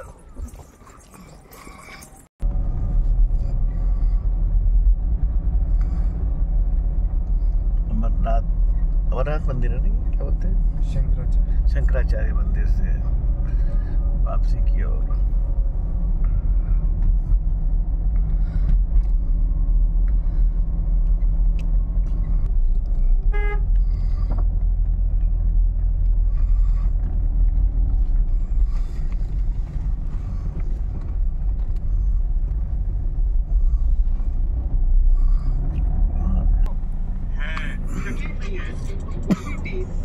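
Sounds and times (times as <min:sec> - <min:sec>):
car engine and tyres rumbling: 0:00.0 - 0:40.0
car horn toot: 0:23.2 - 0:23.8.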